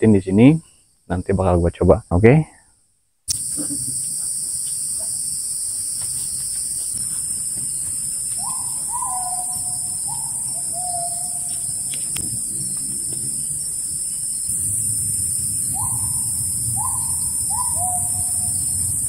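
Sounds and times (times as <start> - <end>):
insects droning: 0.0 - 19.0
bird whistling descending notes: 8.4 - 11.9, 15.6 - 18.8.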